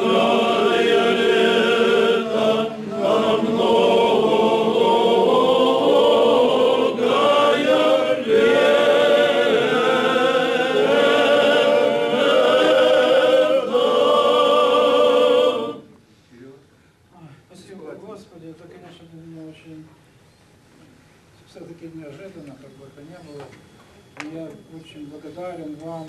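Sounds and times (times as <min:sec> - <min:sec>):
group singing a hymn: 0:00.0 - 0:16.0.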